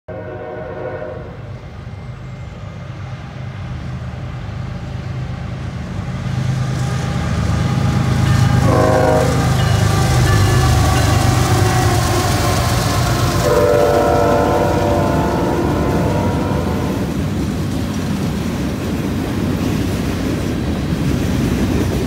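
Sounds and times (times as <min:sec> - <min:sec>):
train horn chord: 0:00.1 - 0:01.5, 0:08.3 - 0:17.1
diesel locomotive engine rumble: 0:00.1 - 0:22.0.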